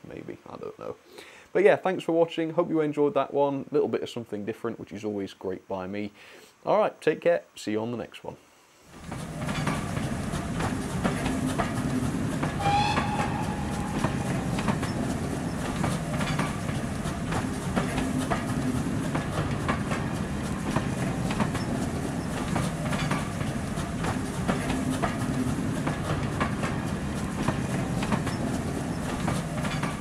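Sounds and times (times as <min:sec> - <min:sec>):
train wheels clacking over rail joints: 0:09.0 - 0:30.0
brief high-pitched tone: 0:12.6 - 0:15.0.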